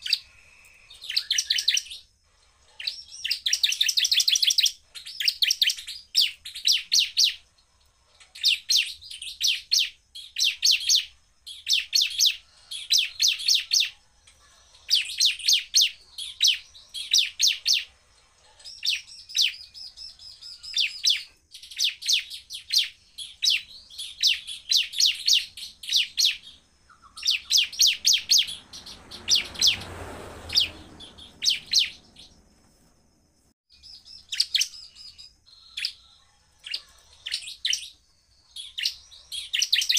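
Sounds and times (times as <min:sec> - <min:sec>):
bird rapid-fire call: 0:00.0 - 0:02.1, 0:08.3 - 0:18.0, 0:18.6 - 0:32.4
rushing noise: 0:27.8 - 0:33.5.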